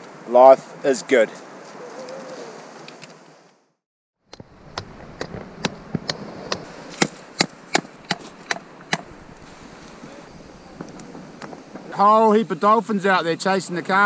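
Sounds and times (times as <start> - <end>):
blade chopping into wood: 4.3 - 9.5.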